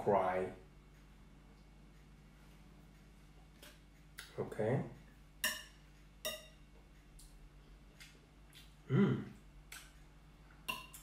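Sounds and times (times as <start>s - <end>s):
cutlery clinking on ceramic plate: 5.4s - 6.6s
brief vocal sound: 8.9s - 9.3s.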